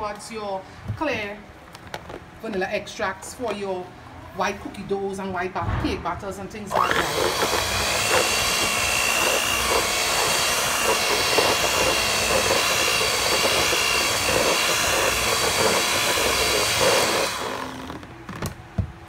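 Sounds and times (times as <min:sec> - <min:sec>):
stand mixer whining: 0:06.7 - 0:18.0.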